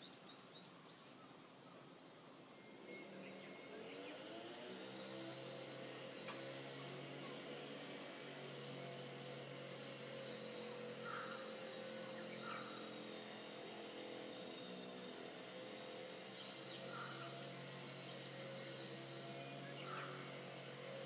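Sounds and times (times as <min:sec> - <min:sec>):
distant engine drone: 0:00.0 - 0:21.0
short bird calls: 0:11.0 - 0:13.0.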